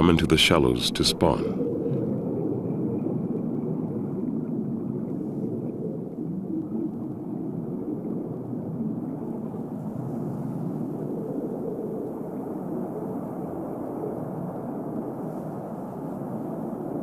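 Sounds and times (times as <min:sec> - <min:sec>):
steady low rumble: 0:00.0 - 0:13.2.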